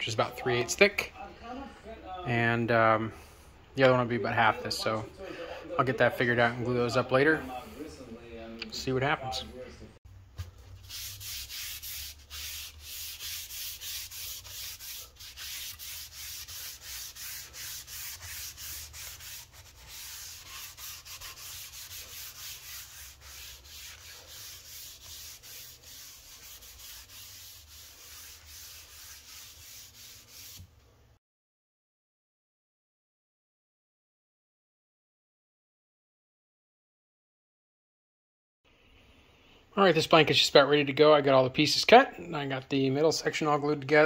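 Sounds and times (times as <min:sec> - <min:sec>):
rag wiping a wooden board: 0:10.7 - 0:30.7.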